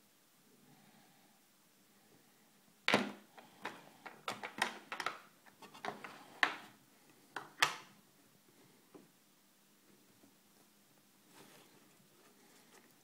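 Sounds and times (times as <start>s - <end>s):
plastic case clicks and snaps: 2.9s - 5.2s.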